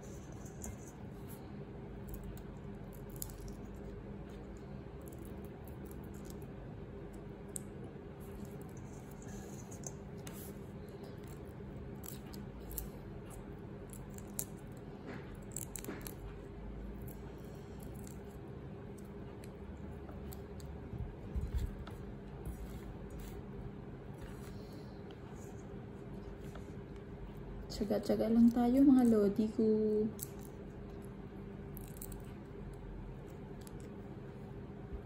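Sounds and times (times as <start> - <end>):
steady low hum: 0.0 - 35.0
shrimp shell clicks and crackles: 2.0 - 10.2, 11.0 - 19.6, 28.4 - 34.0.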